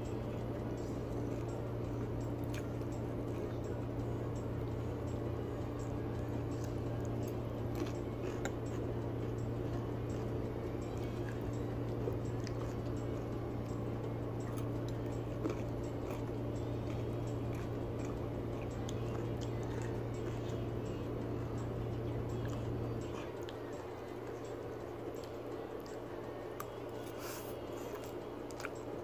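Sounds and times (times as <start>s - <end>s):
steady low hum: 0.0s - 29.0s
person chewing: 0.3s - 3.6s, 6.2s - 13.7s, 14.4s - 20.8s, 24.8s - 29.0s.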